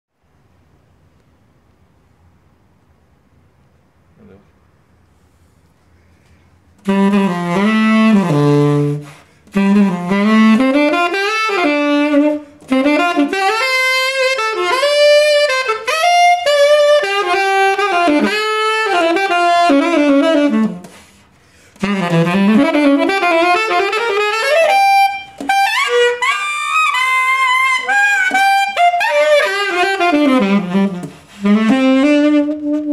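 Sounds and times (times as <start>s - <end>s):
tenor saxophone melody: 6.8s - 32.9s
player breathing: 20.9s - 21.8s.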